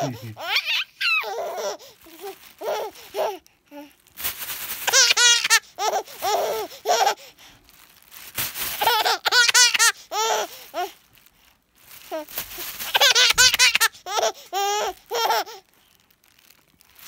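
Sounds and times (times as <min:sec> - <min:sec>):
baby laughing: 0:00.0 - 0:03.4, 0:04.8 - 0:07.2, 0:08.8 - 0:10.6, 0:12.9 - 0:15.6
plastic bag rustling: 0:01.2 - 0:17.0.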